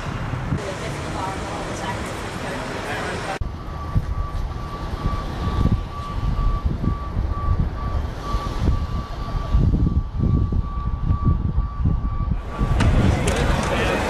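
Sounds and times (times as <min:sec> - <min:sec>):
low rumbling noise: 0:00.0 - 0:14.0
high-pitched electronic beeps: 0:03.4 - 0:12.4.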